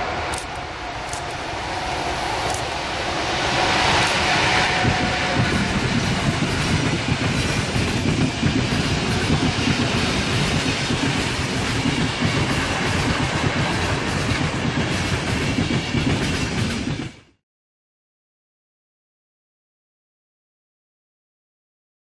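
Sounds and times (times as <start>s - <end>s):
train wheels rumbling on rail: 0.0s - 17.4s.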